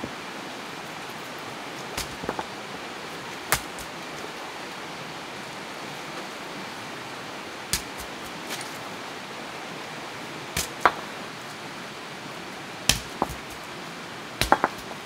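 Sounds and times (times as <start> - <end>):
forest stream rushing: 0.0 - 15.0
sharp knocks and clicks: 12.9 - 13.6, 14.4 - 15.0.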